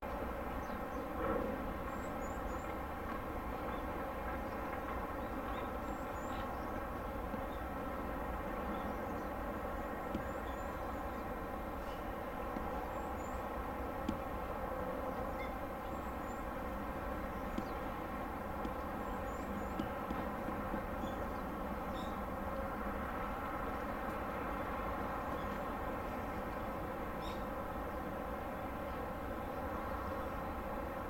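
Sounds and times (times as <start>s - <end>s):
ship machinery hum: 6.3s - 31.0s.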